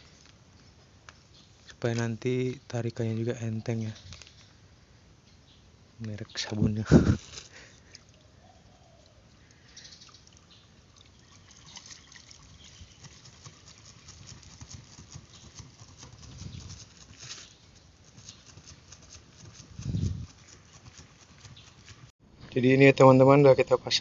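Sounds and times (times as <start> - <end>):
liquid trickling onto gravel: 10.0 - 13.6.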